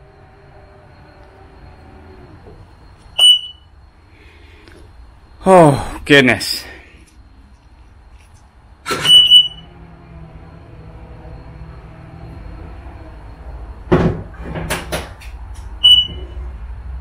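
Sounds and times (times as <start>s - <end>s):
short high beep: 3.2s - 3.7s, 9.0s - 9.7s, 15.8s - 16.2s
motor humming: 7.1s - 13.7s.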